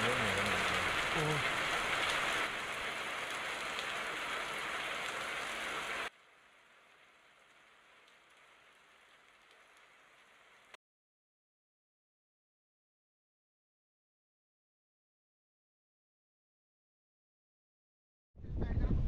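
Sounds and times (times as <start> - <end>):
heavy rain falling: 0.0 - 10.8.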